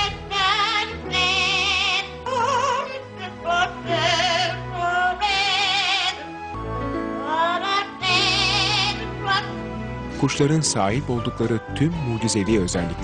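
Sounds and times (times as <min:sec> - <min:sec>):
parrot singing operatically: 0:07.6 - 0:09.5.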